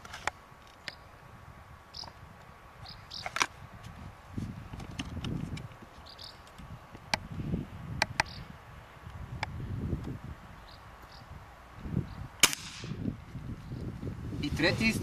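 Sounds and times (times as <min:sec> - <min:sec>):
rustling rumble of rifle handling: 0:00.0 - 0:01.0, 0:02.1 - 0:07.4.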